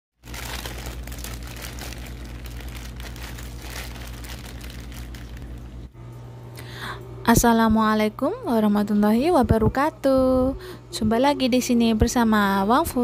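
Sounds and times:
plastic bag crinkling: 0.2s - 5.9s
low hum: 0.2s - 12.1s.

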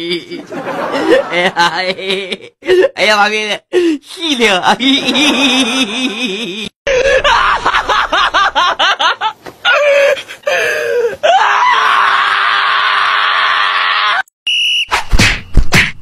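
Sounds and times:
loud harsh scream: 11.2s - 14.3s.

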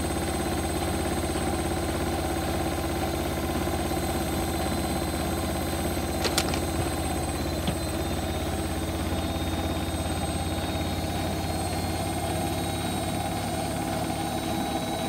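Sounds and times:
washing machine spinning: 0.1s - 15.0s.

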